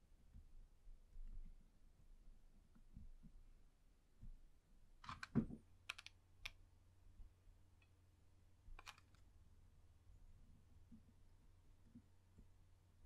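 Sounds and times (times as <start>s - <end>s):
faint low hum: 0.0s - 13.0s.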